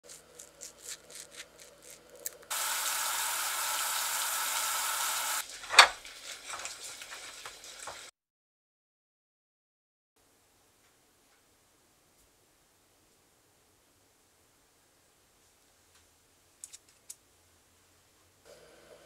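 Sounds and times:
syrup boiling in a pot: 0:00.1 - 0:08.1.

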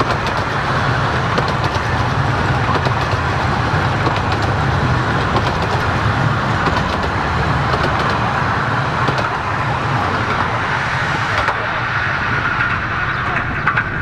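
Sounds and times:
wheels rumbling on track: 0:00.0 - 0:14.0
sharp clicks: 0:06.6 - 0:08.3.

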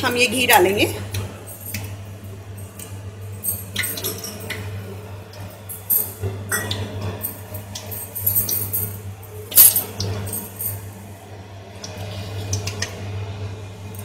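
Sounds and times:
steady low hum: 0:00.0 - 0:14.0
bowl clinking against metal pan: 0:06.5 - 0:06.8.

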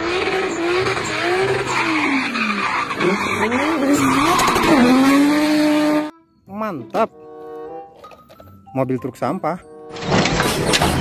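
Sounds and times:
car engine revving: 0:00.0 - 0:06.1
tyres squealing: 0:00.5 - 0:05.4.

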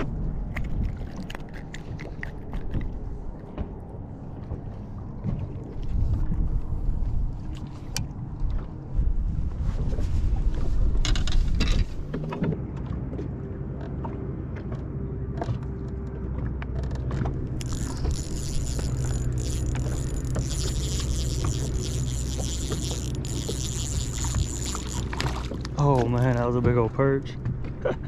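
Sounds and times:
small waves against boat: 0:00.0 - 0:28.0
wind: 0:00.0 - 0:28.0
clicks of fishing tackle: 0:16.6 - 0:26.1
electric motor humming: 0:17.5 - 0:25.7.

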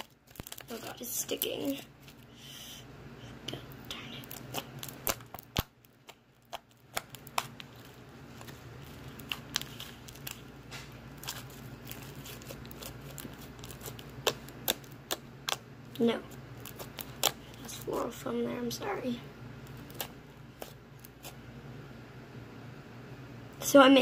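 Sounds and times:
slime clicking and popping: 0:04.2 - 0:08.0, 0:08.8 - 0:10.4, 0:11.2 - 0:15.6, 0:16.6 - 0:17.6.

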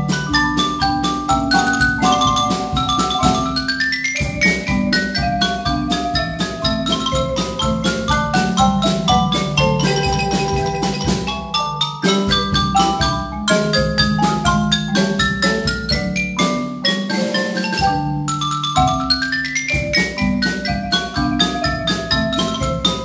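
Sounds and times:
mallet percussion ensemble: 0:00.0 - 0:23.0.

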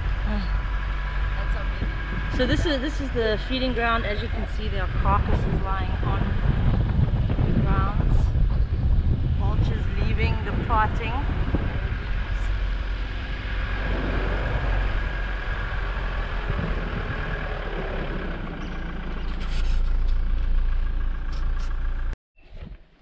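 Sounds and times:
wind buffeting microphone: 0:00.0 - 0:19.0
vehicle rumbling on dirt track: 0:00.0 - 0:23.0.

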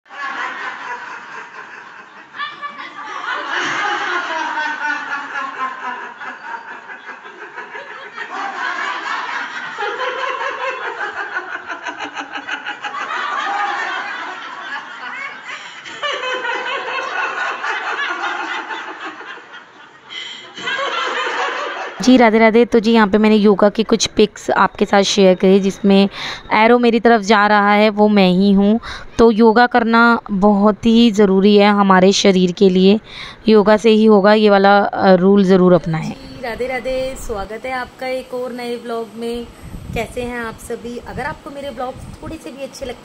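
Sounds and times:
women laughing together: 0:00.1 - 0:22.0.

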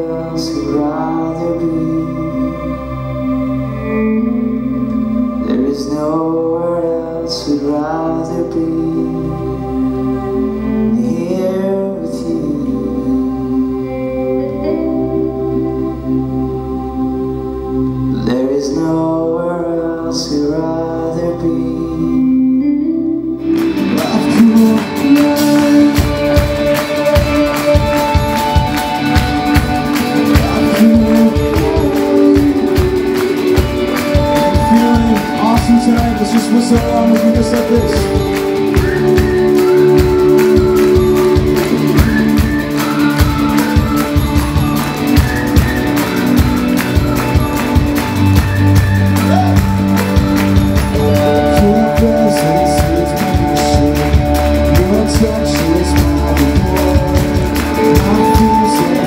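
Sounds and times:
man singing: 0:00.0 - 0:15.6, 0:18.0 - 0:48.0, 0:48.6 - 0:59.0
worship band playing: 0:00.0 - 0:59.0
drums beating: 0:23.5 - 0:59.0.

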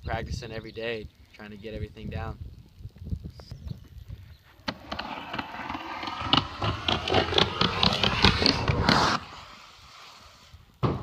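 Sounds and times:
skateboard wheels rolling: 0:04.5 - 0:11.0
wheels clacking over joints: 0:04.6 - 0:09.2.

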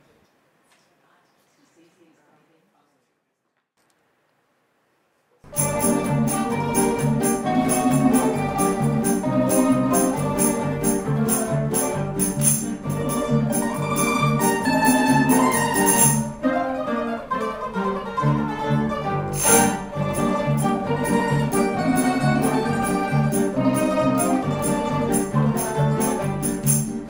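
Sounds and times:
tambourine jingling: 0:05.5 - 0:16.4, 0:19.4 - 0:27.0
plucked string ensemble: 0:05.5 - 0:27.0.

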